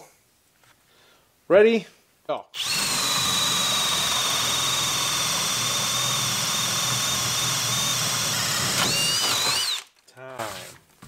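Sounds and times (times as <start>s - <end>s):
drill motor whine: 2.6s - 9.8s
wood being cut rasping: 2.6s - 9.8s.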